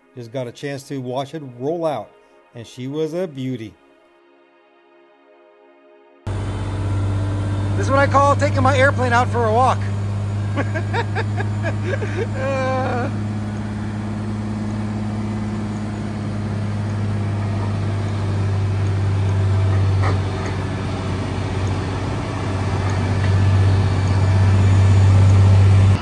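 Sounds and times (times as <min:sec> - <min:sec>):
tug engine deep hum: 0:06.3 - 0:26.0.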